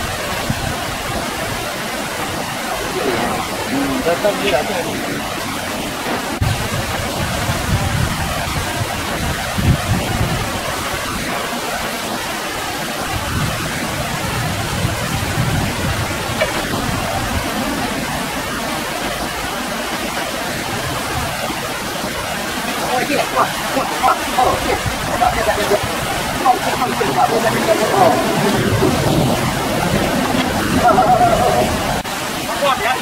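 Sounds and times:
flowing river water: 0.0s - 33.0s
low rumbles: 13.1s - 32.2s.

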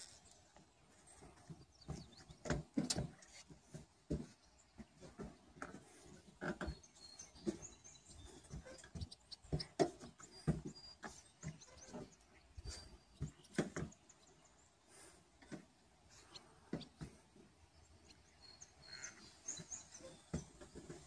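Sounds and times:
faint bird chirps: 6.6s - 14.8s, 17.6s - 21.0s.

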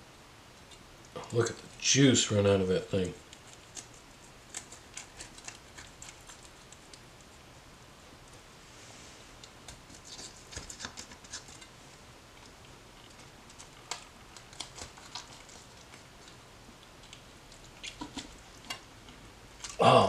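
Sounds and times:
knife crackling through crisp skin: 3.3s - 7.0s.

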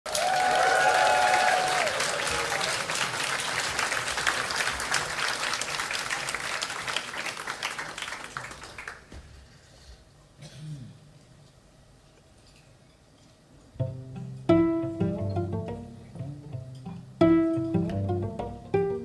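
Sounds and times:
audience applauding: 0.1s - 9.1s.

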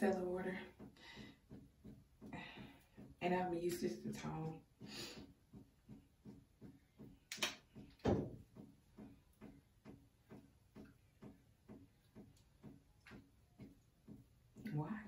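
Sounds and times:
soft steady ticking: 0.0s - 15.0s
dull thump: 7.8s - 9.1s.

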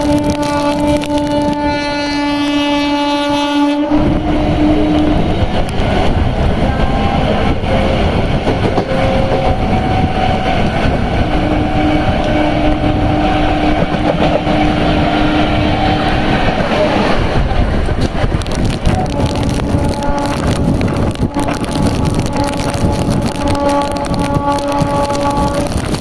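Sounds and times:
train horn: 0.0s - 8.1s, 8.8s - 10.6s, 11.2s - 17.1s, 18.9s - 26.0s
train rumbling and track clatter: 0.0s - 26.0s.

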